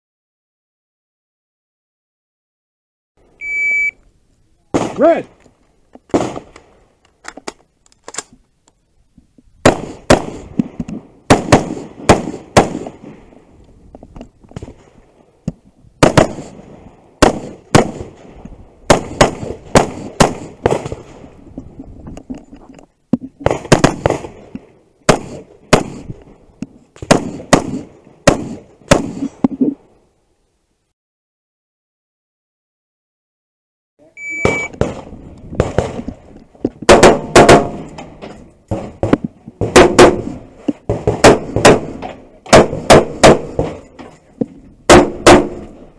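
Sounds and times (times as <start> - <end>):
rifle gunshots: 4.7 - 5.2, 6.1 - 6.6, 9.6 - 13.3, 16.0 - 18.3, 18.9 - 21.3, 23.4 - 24.5, 25.1 - 26.1, 27.0 - 29.3, 34.4 - 36.1, 36.8 - 43.9, 44.9 - 45.8.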